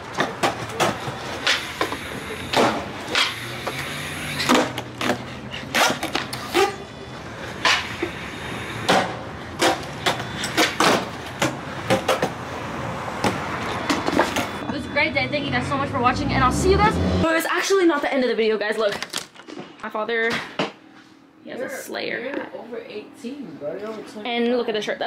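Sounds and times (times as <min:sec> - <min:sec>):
skateboard wheels rolling on concrete: 0:00.0 - 0:14.8
skateboard clacks: 0:08.8 - 0:12.4.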